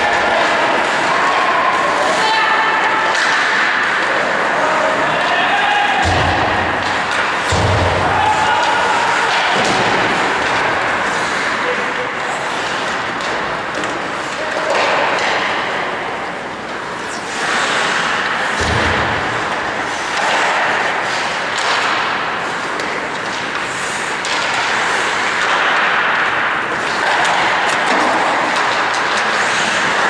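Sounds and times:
hockey sticks and puck clicking: 0:00.0 - 0:30.0
skate blades scraping ice: 0:06.4 - 0:30.0.

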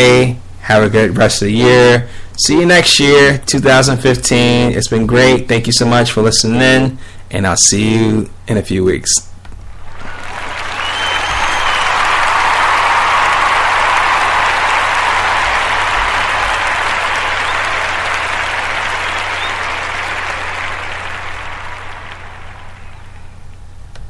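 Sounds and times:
crowd applauding: 0:09.7 - 0:23.5.

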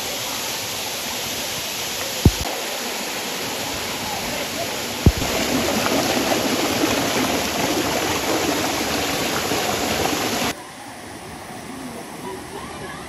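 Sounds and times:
stream rushing over boulders: 0:00.0 - 0:13.0
brief thump: 0:05.1 - 0:05.3.

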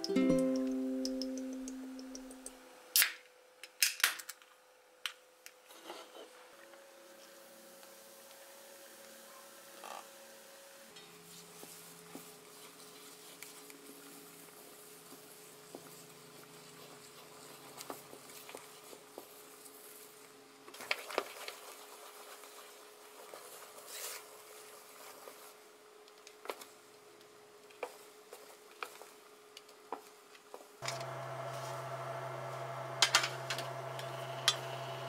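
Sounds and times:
steady hum: 0:30.8 - 0:35.0.

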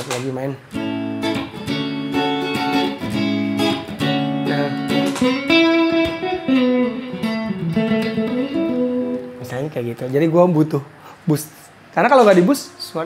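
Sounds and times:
clean electric guitar lead: 0:00.7 - 0:09.7.

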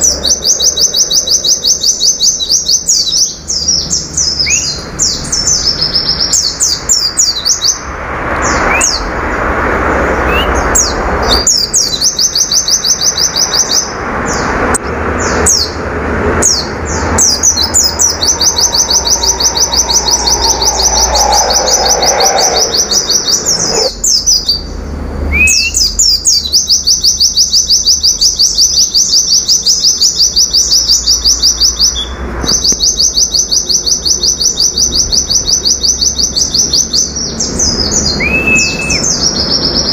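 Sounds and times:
bird singing fast trills: 0:00.0 - 0:07.8, 0:10.3 - 0:14.5, 0:16.4 - 0:39.9
short bird chirps: 0:10.3 - 0:10.6.

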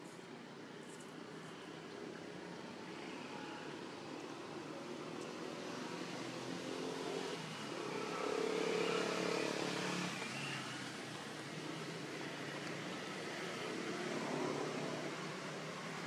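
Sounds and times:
vehicle engine passing by: 0:05.6 - 0:12.3.

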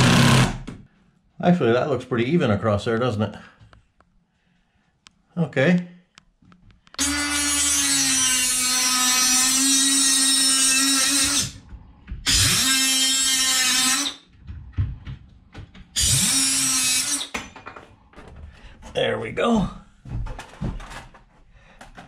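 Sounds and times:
cordless power tool running: 0:00.0 - 0:00.6.

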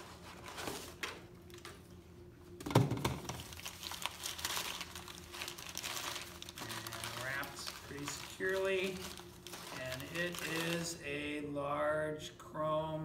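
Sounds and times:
packing paper crinkling: 0:03.2 - 0:11.0.

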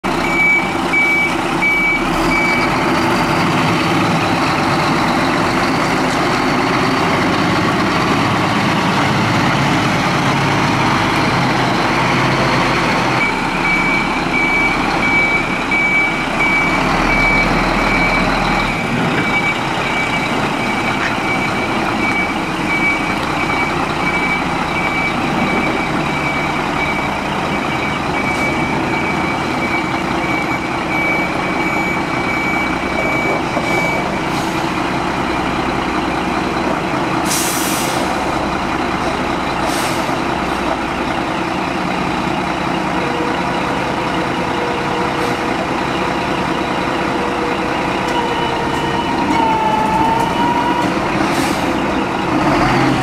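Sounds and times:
truck diesel engine running: 0:00.0 - 0:53.0
reversing alarm beeps: 0:00.2 - 0:02.8, 0:13.2 - 0:34.6, 0:46.3 - 0:52.1.

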